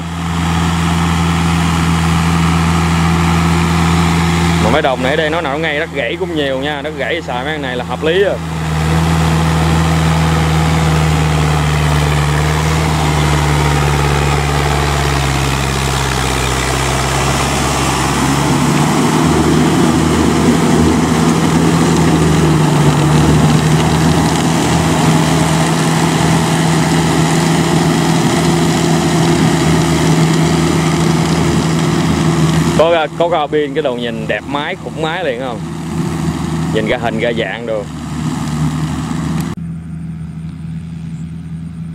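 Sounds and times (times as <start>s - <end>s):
diesel tractor engine under load: 0.0s - 41.9s.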